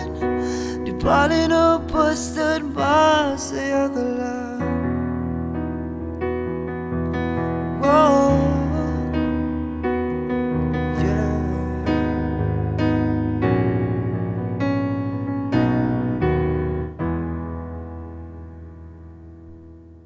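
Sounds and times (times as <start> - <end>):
slow piano chords: 0.0 - 20.0.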